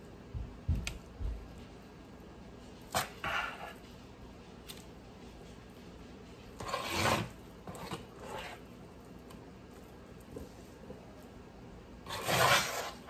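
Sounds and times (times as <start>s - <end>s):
spoon scraping a bowl: 6.6s - 8.7s, 12.0s - 13.0s.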